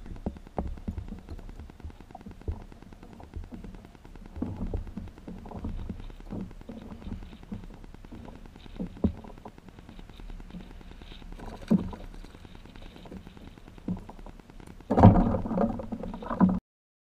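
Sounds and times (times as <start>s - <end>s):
knocks and thumps in kayak: 0.1s - 10.0s, 14.8s - 16.6s.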